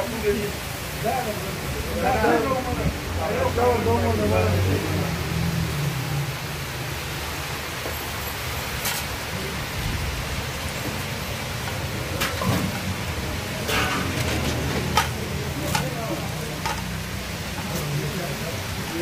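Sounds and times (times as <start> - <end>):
kebabs sizzling in hot fat: 0.0 - 19.0
metal spoon clinking on pans: 13.6 - 16.9.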